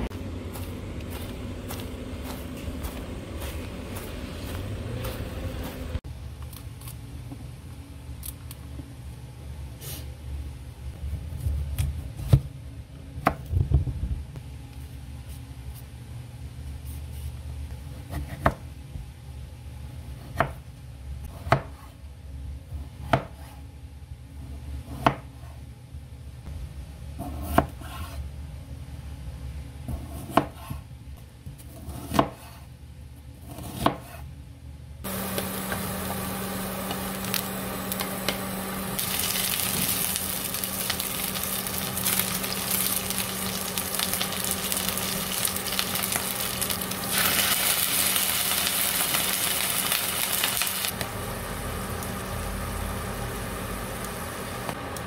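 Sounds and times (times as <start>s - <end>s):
steady low hum: 0.0s - 55.0s
knife cutting on wooden board: 27.2s - 28.2s, 31.6s - 32.7s, 33.4s - 34.3s
onions sizzling in a frying pan: 35.1s - 54.7s.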